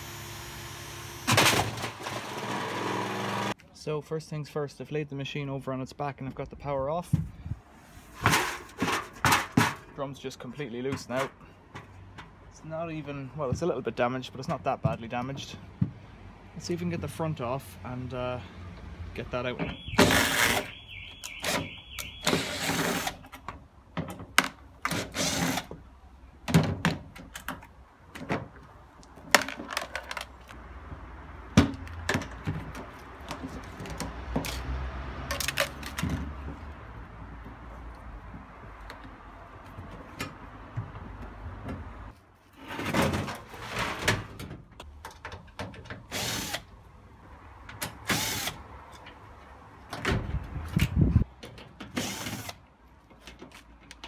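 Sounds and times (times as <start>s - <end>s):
cordless drill whining: 0.0s - 1.4s
plastic panels knocking and clattering: 29.3s - 30.4s.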